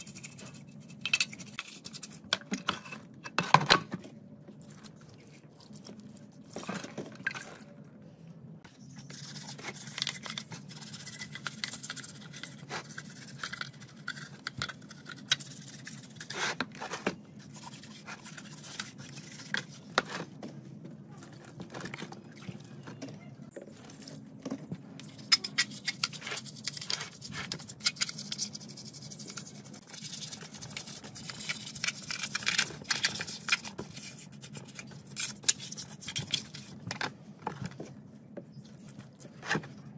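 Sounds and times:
low steady hum: 0:00.0 - 0:39.9
brush scrubbing metal: 0:25.3 - 0:36.7.

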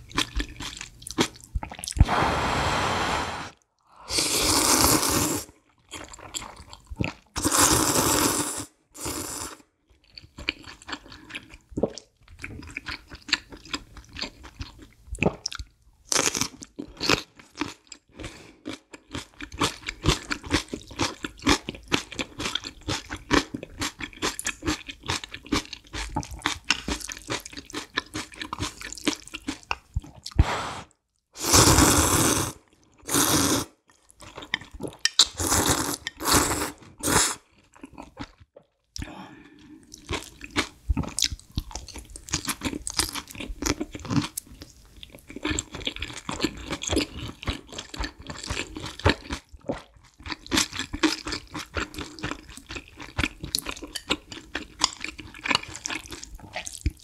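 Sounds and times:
noodle slurping: 0:01.9 - 0:05.5.

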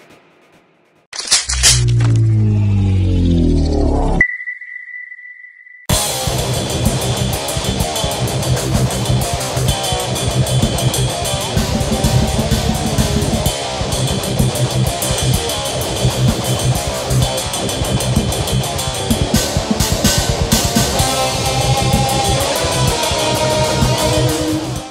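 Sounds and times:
rock music with guitar and drums: 0:05.9 - 0:24.9.

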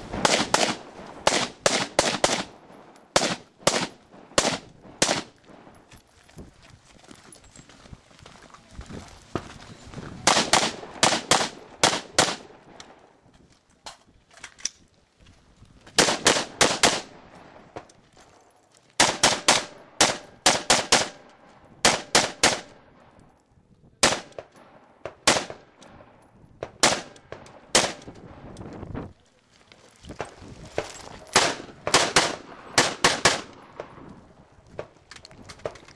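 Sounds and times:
rifle gunshots: 0:00.1 - 0:05.7, 0:10.2 - 0:12.7, 0:16.0 - 0:17.2, 0:19.0 - 0:21.2, 0:21.8 - 0:22.8, 0:24.0 - 0:28.1, 0:31.4 - 0:33.9.

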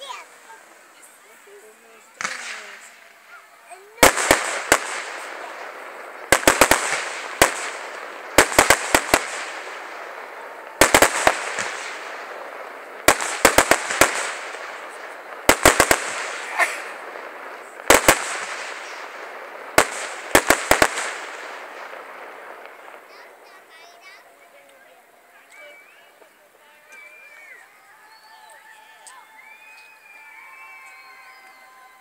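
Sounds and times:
fireworks bangs: 0:00.0 - 0:32.0
fireworks hiss: 0:00.0 - 0:32.0.

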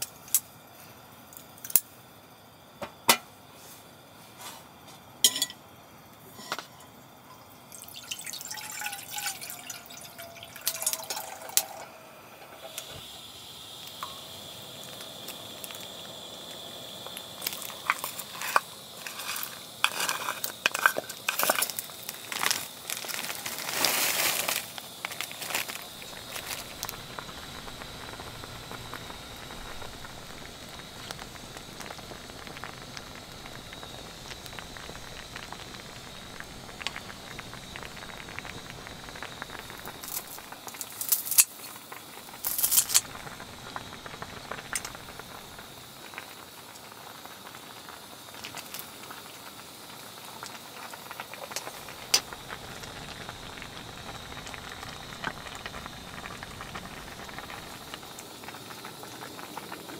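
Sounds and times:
soup bubbling in a pot: 0:05.3 - 0:59.9.

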